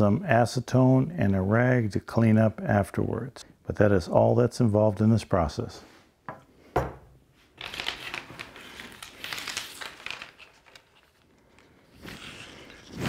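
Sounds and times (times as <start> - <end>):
tape rustling and crinkling: 7.5 - 13.0.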